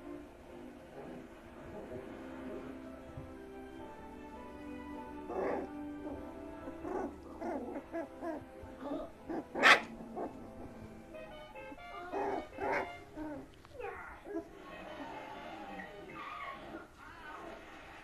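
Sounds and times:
background music: 0.0 - 17.0
puppies yipping and barking: 9.3 - 10.8, 12.1 - 13.5.

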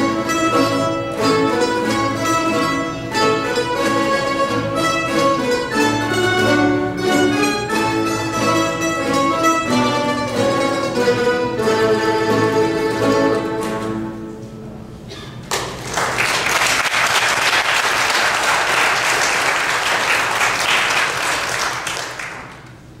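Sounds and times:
mandolin ensemble chord ringing: 0.0 - 15.0
audience applause: 15.5 - 22.8.

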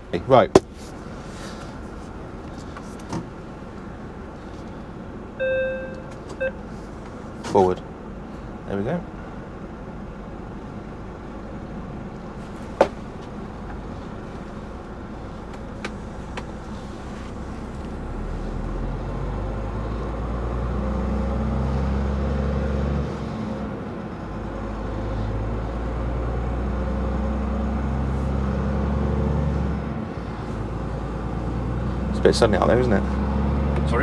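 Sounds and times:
diesel truck engine pulling away: 8.4 - 34.0.

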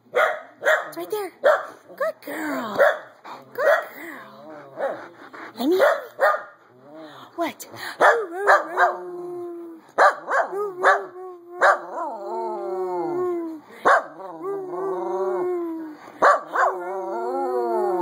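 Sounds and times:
dog barking: 0.1 - 1.8, 2.8 - 4.0, 5.8 - 6.6, 8.0 - 9.0, 10.0 - 11.9, 13.8 - 14.2, 16.2 - 16.8
dog howling: 8.1 - 18.0.

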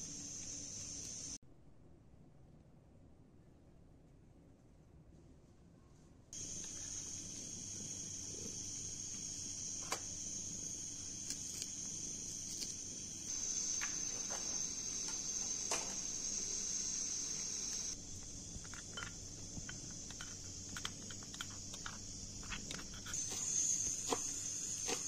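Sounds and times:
crickets trilling: 0.0 - 1.4, 6.4 - 25.0.

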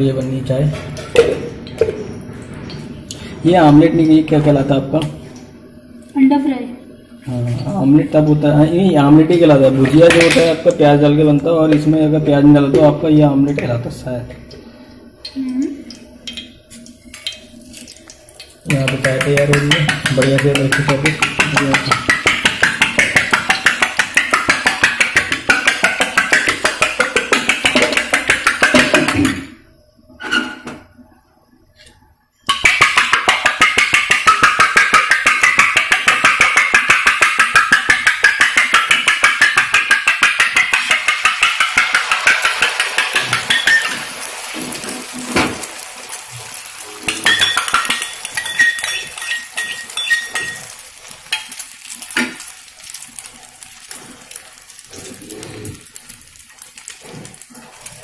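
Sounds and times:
egg on hot griddle: 15.2 - 29.4, 32.5 - 58.0
spoon beating eggs in metal pan: 15.9 - 29.4, 32.5 - 55.2.

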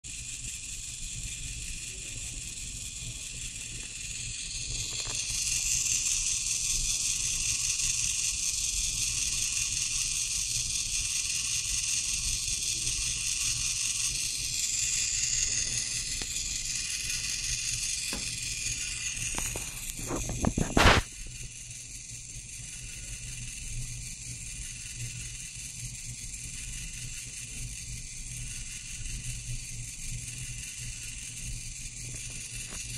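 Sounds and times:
servo motor whirring: 0.1 - 32.9
quick run of clicks: 17.9 - 21.1.

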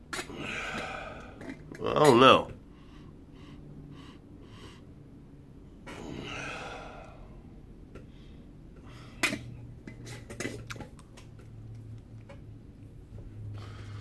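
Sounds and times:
person breathing: 0.4 - 1.5, 2.6 - 5.1, 5.9 - 9.3, 13.4 - 14.0.

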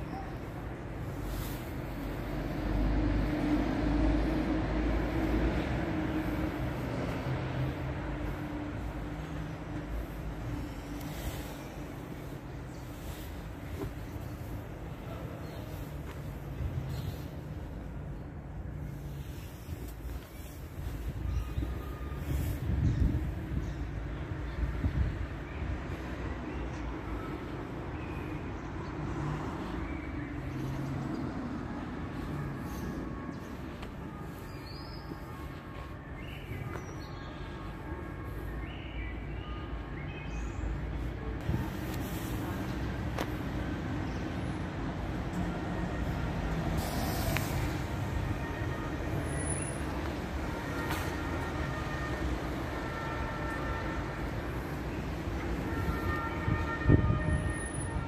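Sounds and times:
bus running close by: 0.0 - 23.6, 41.3 - 58.0
city street traffic rumble: 0.0 - 58.0.

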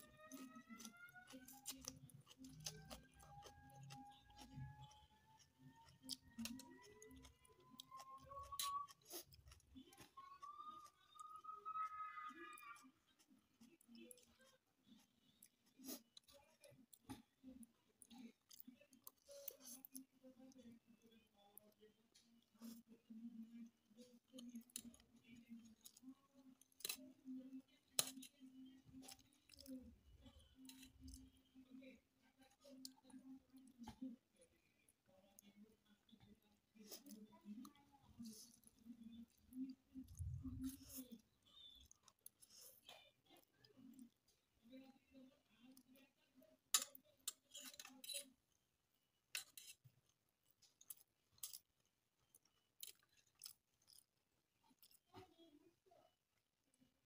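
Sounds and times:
chewing and slurping noodles: 0.2 - 11.2, 49.4 - 55.1.

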